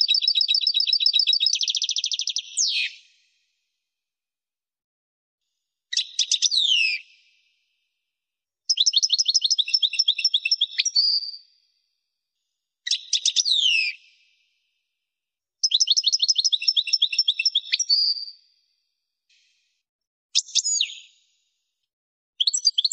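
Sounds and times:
goldfinch song: 0:00.0 - 0:03.5, 0:08.6 - 0:11.6, 0:12.8 - 0:14.3, 0:15.6 - 0:18.5, 0:20.4 - 0:21.5, 0:22.4 - 0:22.9.

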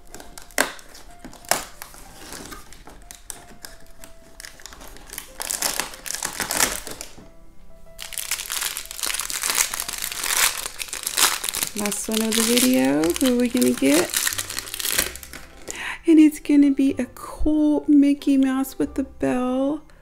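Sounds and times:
plastic bag crinkling: 0:00.0 - 0:07.2, 0:08.0 - 0:15.8
soft background music: 0:00.0 - 0:20.0.

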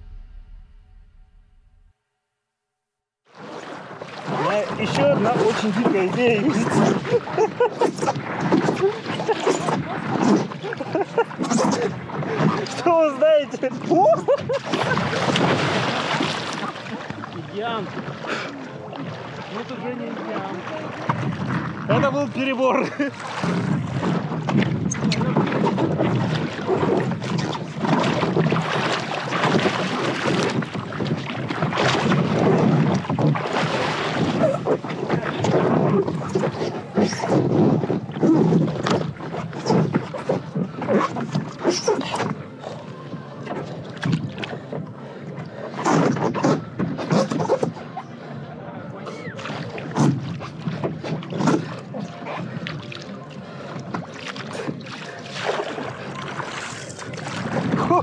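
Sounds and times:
water splashing against paddleboard: 0:03.3 - 0:58.0
wind buffeting microphone: 0:20.1 - 0:41.6.

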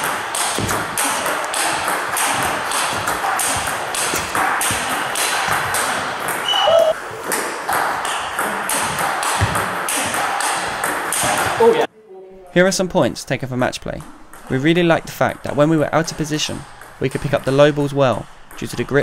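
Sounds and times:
shoe squeak: 0:06.4 - 0:07.0.

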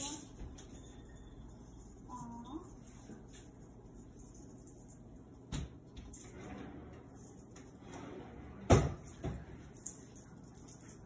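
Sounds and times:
cabinet knocks and thumps: 0:08.6 - 0:09.5.

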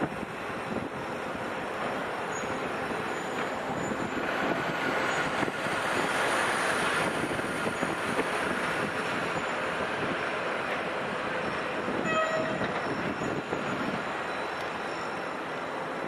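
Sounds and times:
passing traffic rushing: 0:00.0 - 0:16.0.

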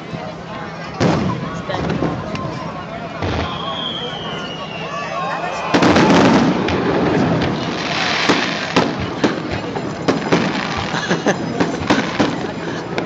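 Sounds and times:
firework sharp bangs: 0:01.0 - 0:02.5, 0:03.2 - 0:04.8, 0:05.6 - 0:13.0
firework crackling hiss: 0:03.2 - 0:11.0
firework boom: 0:05.7 - 0:10.9.

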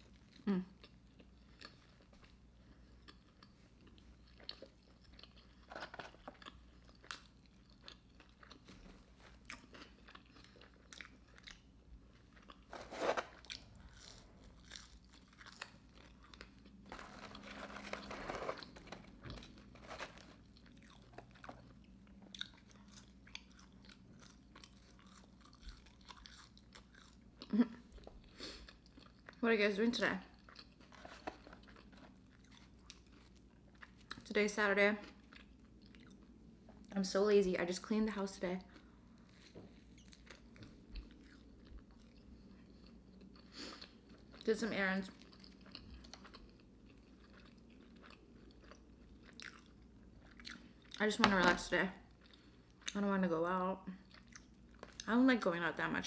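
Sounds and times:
person chewing with mouth smacks: 0:20.4 - 0:29.4, 0:45.2 - 0:51.0.

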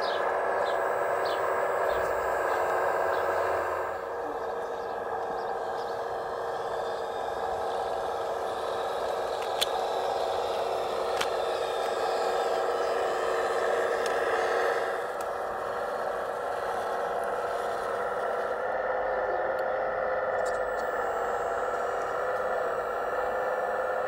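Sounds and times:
electric motors whining: 0:00.0 - 0:24.0
sharp clicks: 0:09.3 - 0:10.0, 0:14.0 - 0:14.3.

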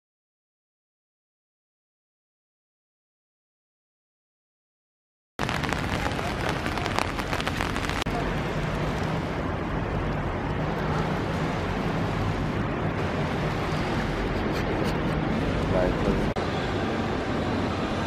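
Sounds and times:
microphone crackling: 0:05.4 - 0:08.1
rain on street: 0:05.4 - 0:14.4.

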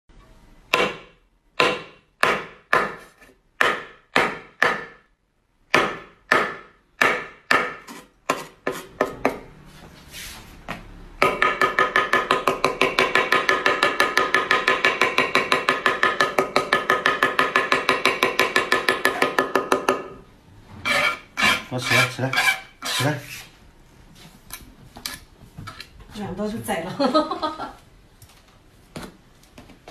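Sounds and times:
cleaver chopping on wooden board: 0:00.7 - 0:05.0, 0:05.7 - 0:09.5, 0:11.2 - 0:20.1.

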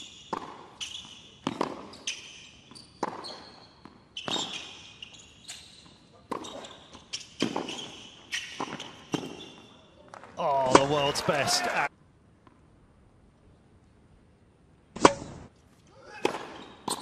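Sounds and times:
shoes squeaking on court: 0:00.0 - 0:10.3, 0:15.2 - 0:17.0.

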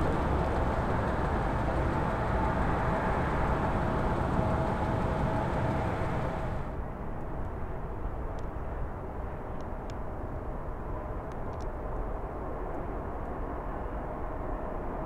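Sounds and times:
jet engines roaring: 0:00.0 - 0:06.8
dull aircraft rumble: 0:00.0 - 0:15.0.

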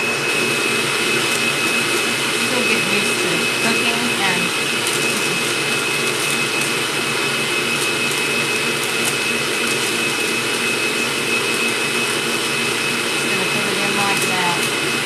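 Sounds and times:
stand mixer whirring: 0:00.0 - 0:15.0
parchment paper crinkling: 0:07.7 - 0:10.2.

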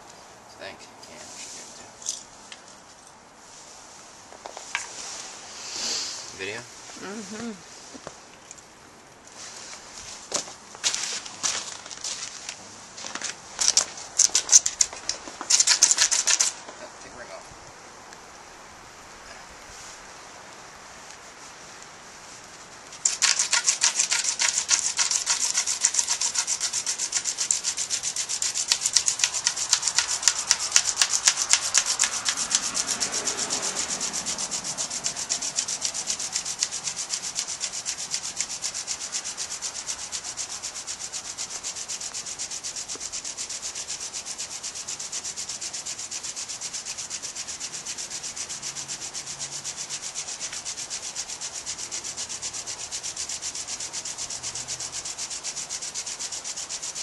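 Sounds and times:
hand drill grinding into wood: 0:13.6 - 0:16.6, 0:23.0 - 0:48.7.

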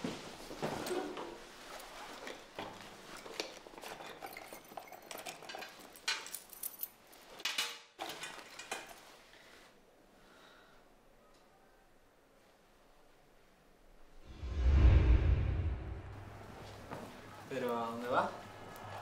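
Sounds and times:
metal clinks and rattles: 0:03.1 - 0:07.4.

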